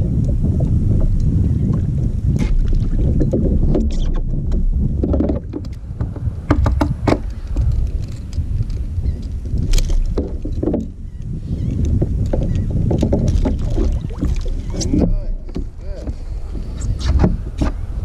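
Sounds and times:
wind on microphone: 0:00.0 - 0:18.0.

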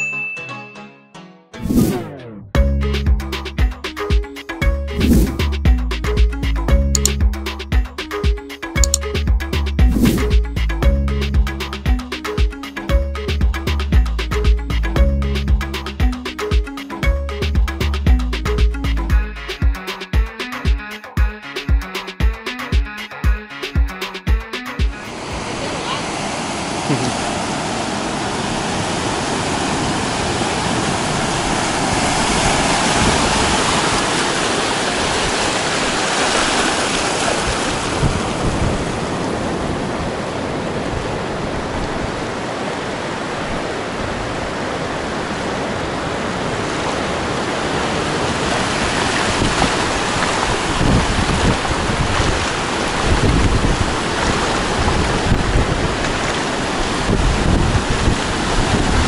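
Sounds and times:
ocean surf washing onto beach: 0:24.9 - 0:59.0
wind buffeting microphone: 0:37.4 - 0:42.3, 0:48.7 - 0:59.0.

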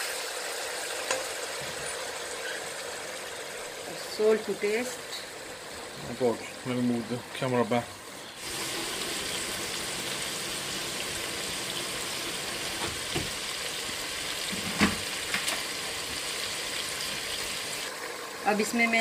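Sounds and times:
chicken sizzling in a pot: 0:00.0 - 0:19.0.

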